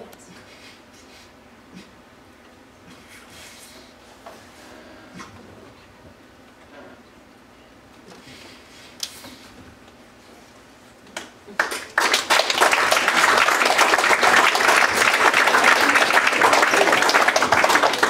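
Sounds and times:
audience applauding: 11.5 - 18.0.

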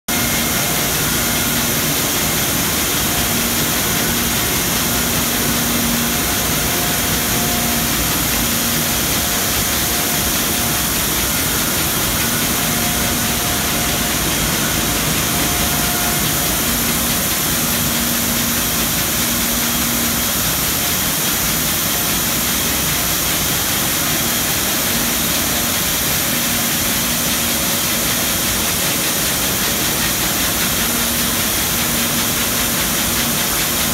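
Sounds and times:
higher machine tone: 0.1 - 21.0
machinery hiss: 0.1 - 33.9.

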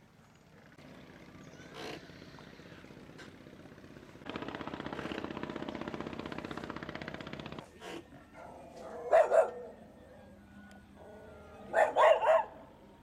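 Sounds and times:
dog barking: 8.4 - 9.7, 11.7 - 12.6.

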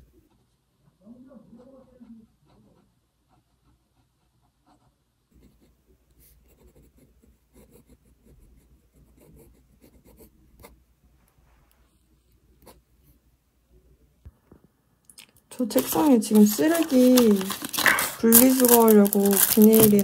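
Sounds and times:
pen nib scratching paper: 2.5 - 10.8, 15.7 - 20.0.

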